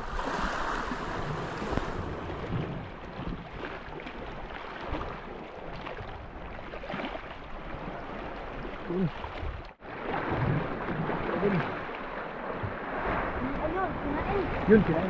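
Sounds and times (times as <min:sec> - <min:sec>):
wind buffeting microphone: 0:00.0 - 0:06.6
surf on rocky shore: 0:00.0 - 0:15.0.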